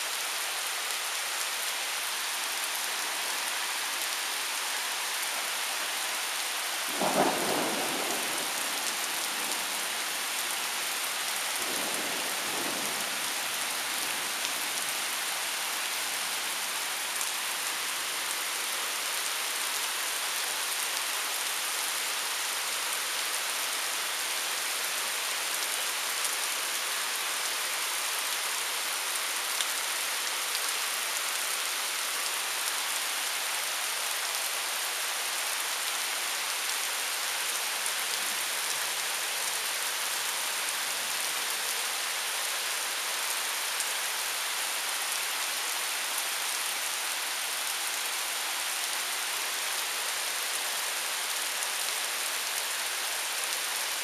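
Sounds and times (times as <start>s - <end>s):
heavy rain hissing: 0.0s - 19.4s.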